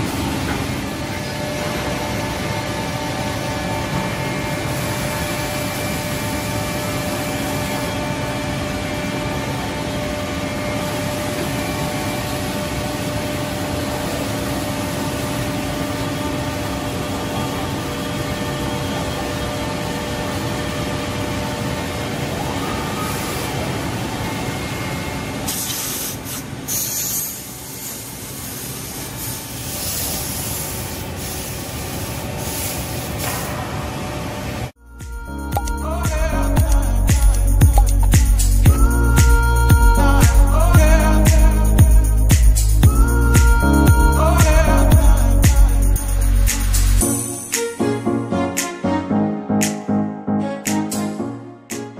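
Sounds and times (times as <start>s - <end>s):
spindle whine: 0.0s - 25.5s, 33.6s - 51.7s
high-pitched noise bursts: 34.8s - 48.2s.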